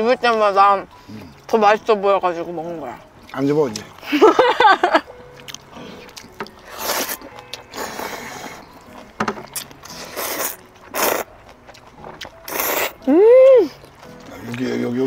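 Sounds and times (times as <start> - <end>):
noodles being slurped: 6.0 - 8.6, 9.6 - 13.1.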